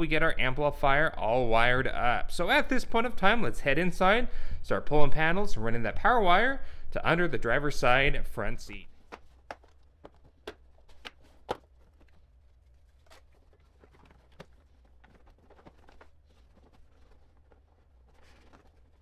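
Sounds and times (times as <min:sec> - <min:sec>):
soft rustling: 0:08.7 - 0:19.0.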